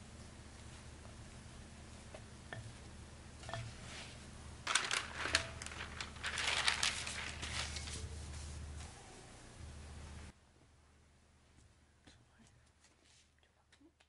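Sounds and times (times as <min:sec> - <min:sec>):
plastic cling film crinkling: 0:04.6 - 0:08.4.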